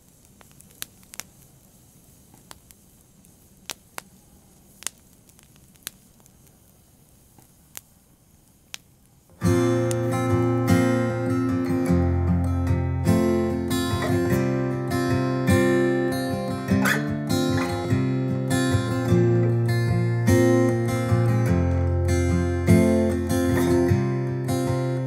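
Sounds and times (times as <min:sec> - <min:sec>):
sharp clicks: 0:04.8 - 0:06.6, 0:09.8 - 0:10.1
acoustic guitar chords: 0:09.3 - 0:25.0.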